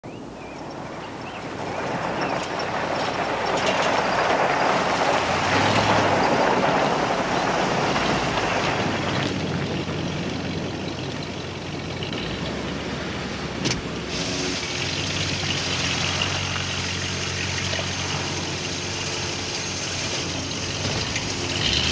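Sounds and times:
car driving past: 1.0s - 21.9s.

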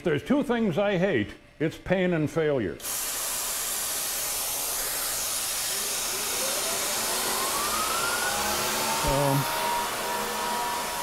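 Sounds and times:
mist coolant nozzle hissing: 2.8s - 7.7s
mill spindle whine rising: 3.6s - 11.0s.

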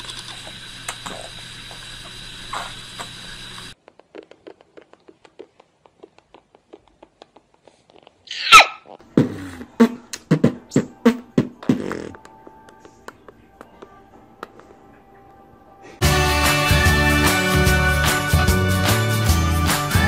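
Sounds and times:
beatboxing vocal sweep: 8.3s - 12.2s
beatboxed kick and snare: 9.2s - 12.1s.

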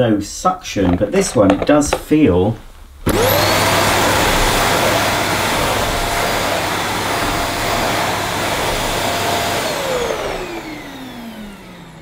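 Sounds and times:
vacuum cleaner running: 3.0s - 12.0s.

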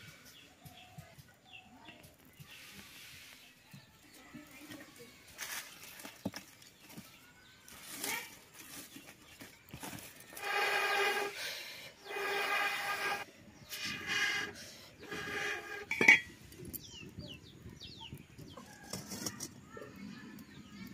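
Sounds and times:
twigs rustling and knocking: 5.4s - 11.0s
blowing through metal blowpipe: 10.3s - 16.3s.

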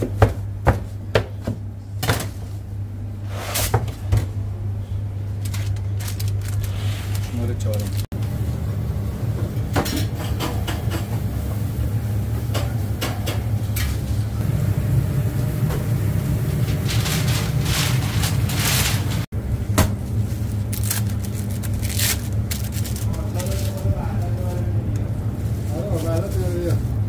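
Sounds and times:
low hum: 4.4s - 25.9s.

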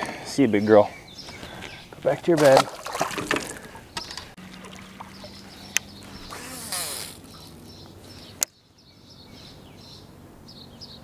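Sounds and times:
knocks and clicks in a boat: 2.3s - 4.3s
water splash: 2.4s - 3.7s
low steady hum: 2.7s - 9.1s.

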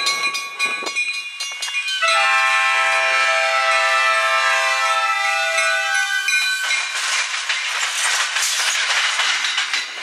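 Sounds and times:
train horn: 2.0s - 6.2s
train wheels clattering on rails: 4.6s - 10.0s.

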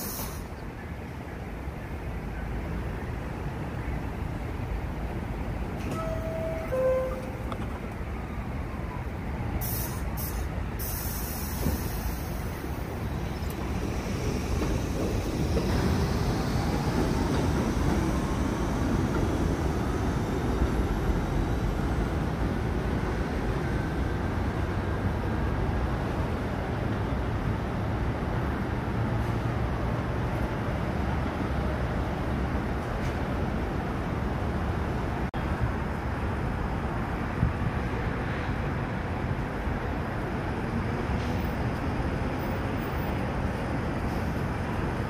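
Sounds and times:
air hiss: 0.0s - 0.6s, 9.6s - 12.7s
train wheels rumbling on rails: 9.2s - 45.0s.

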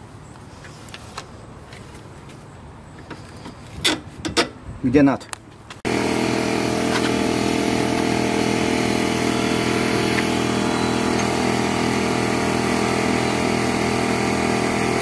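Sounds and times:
engine idling: 5.9s - 15.0s.

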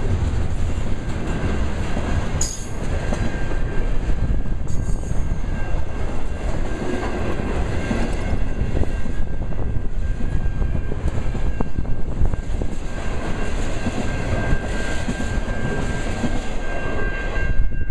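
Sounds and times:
train wheels rumbling on rail: 0.0s - 17.9s
high ringing tone: 2.4s - 6.6s, 7.8s - 17.9s.

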